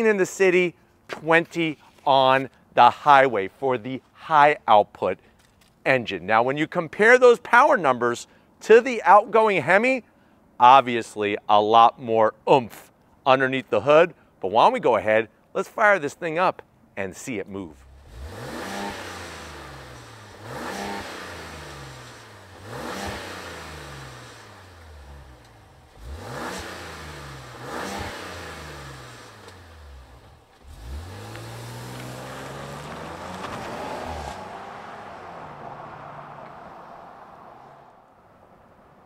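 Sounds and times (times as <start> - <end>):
engine revving: 17.8 - 37.9
truck pulling away: 18.1 - 37.9.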